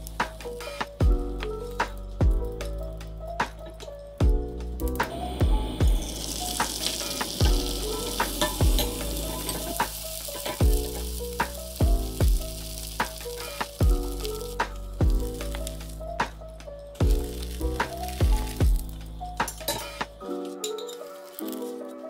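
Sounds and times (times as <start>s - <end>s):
music with thudding beat: 0.0s - 20.2s
egg sizzling in a frying pan: 4.8s - 16.4s, 17.0s - 20.3s, 21.0s - 21.7s.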